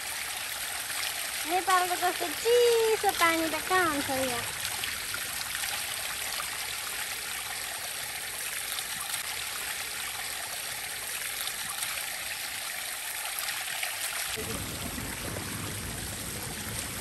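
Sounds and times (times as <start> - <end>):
water rushing over rocks: 0.7 - 6.9, 11.4 - 17.0.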